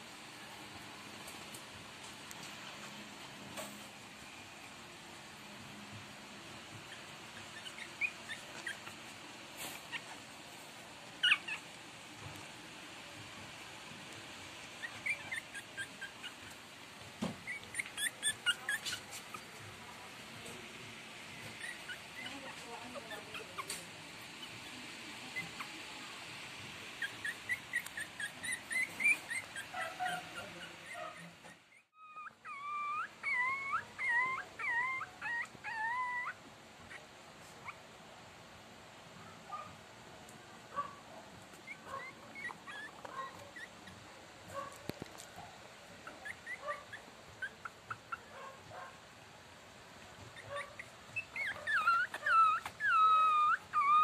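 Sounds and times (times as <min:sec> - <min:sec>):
puppies squeaking whimpers: 0:06.9 - 0:09.1, 0:11.2 - 0:11.7, 0:14.8 - 0:16.6, 0:17.4 - 0:19.7, 0:21.4 - 0:25.8, 0:27.0 - 0:37.0, 0:41.7 - 0:44.1, 0:46.0 - 0:48.2, 0:50.2 - 0:54.0.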